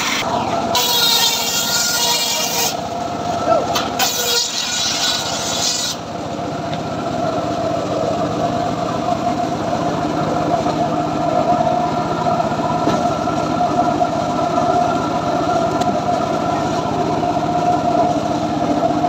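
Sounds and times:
circular saw blade humming: 0.0s - 6.1s.

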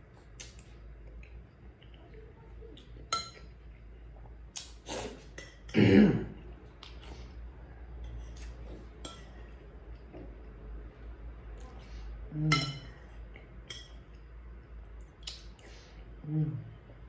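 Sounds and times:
spoon clinking against bowl: 3.1s - 3.5s.

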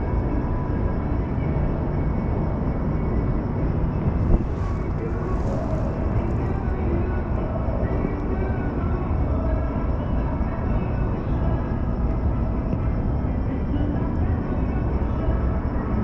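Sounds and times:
monorail car rumble: 0.0s - 16.0s
faint muffled voices: 4.0s - 16.0s.

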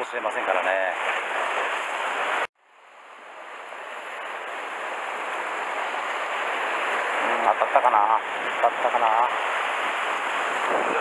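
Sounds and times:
surf washing over rocks: 3.9s - 11.0s.

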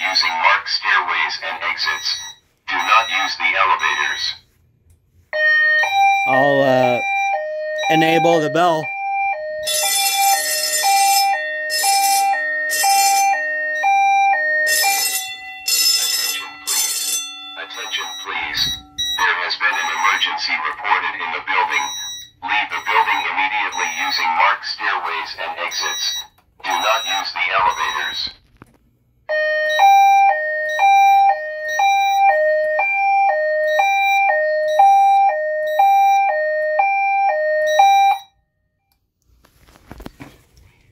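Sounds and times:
fire alarm bell ringing: 0.0s - 0.6s, 1.4s - 4.4s, 5.4s - 28.4s, 29.3s - 38.8s
two-note evacuation alert tone: 5.4s - 20.3s.

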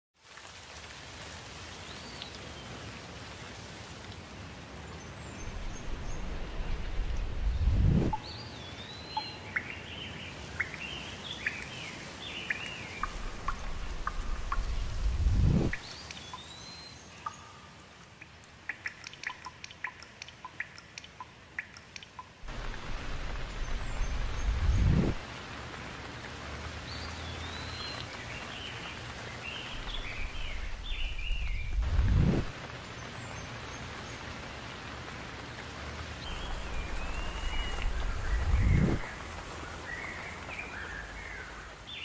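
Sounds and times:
rain falling: 0.2s - 42.0s
water drops plinking: 12.5s - 22.4s.

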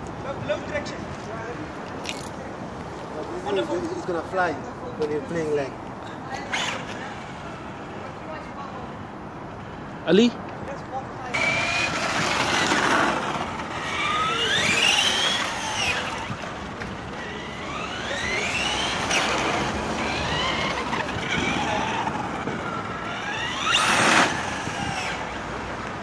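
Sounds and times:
electric motor whining: 11.4s - 25.4s.

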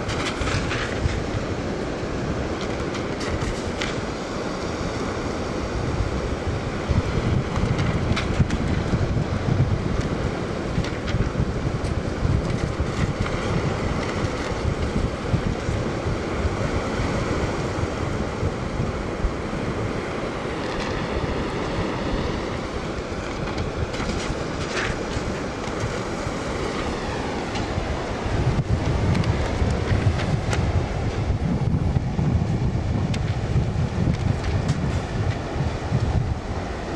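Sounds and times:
small waves washing on sand: 0.0s - 36.9s
wind gusting across microphone: 0.0s - 36.9s.

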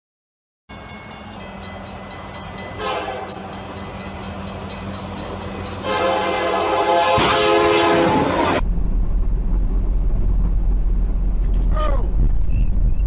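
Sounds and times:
locomotive engine running: 0.7s - 12.2s
locomotive air horn: 2.8s - 3.5s, 5.8s - 8.6s.

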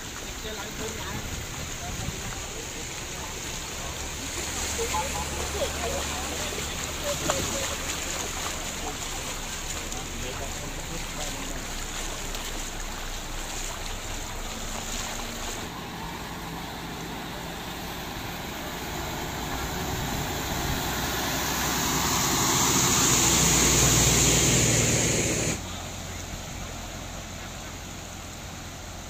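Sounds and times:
truck engine: 0.0s - 29.0s
tyres spraying water: 0.0s - 29.0s
water running over road: 0.0s - 29.0s.

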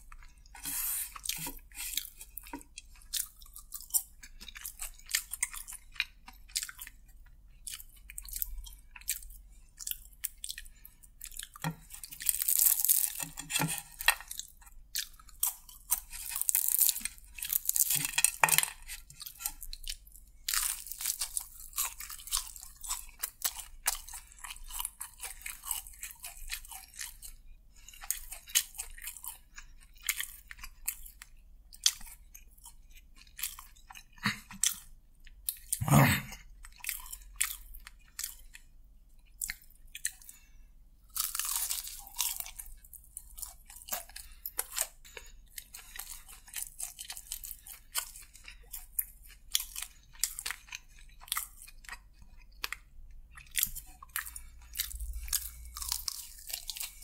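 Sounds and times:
chewing and crunching fried chicken: 0.0s - 57.0s.

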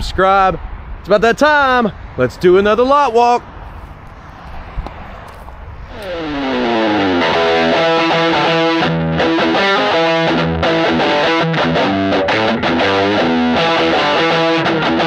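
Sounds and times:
distorted electric guitar rock music: 5.9s - 15.0s.

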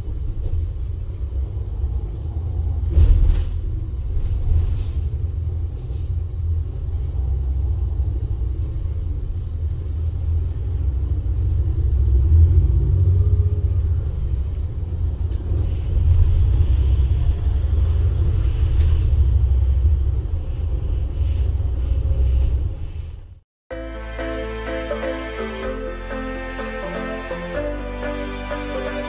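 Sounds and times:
bus diesel engine rumble: 0.0s - 23.4s
road noise: 0.0s - 29.0s.

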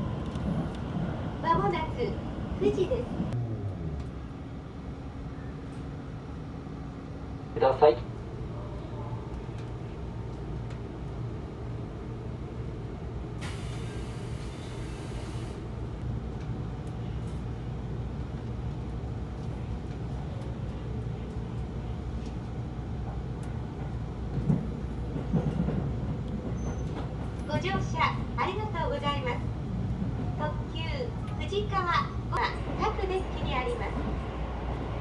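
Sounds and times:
train cabin hum and rumble: 0.0s - 35.0s
hiss: 13.4s - 15.6s.

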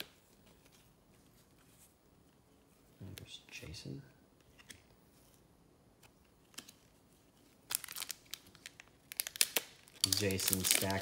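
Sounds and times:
wrapper crinkling: 7.6s - 11.0s.

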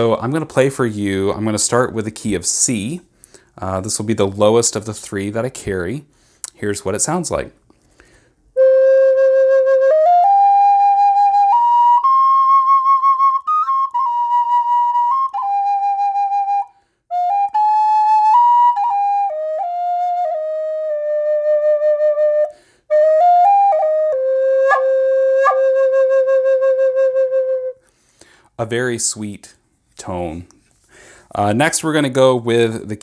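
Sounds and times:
solo flute melody: 8.6s - 27.9s.

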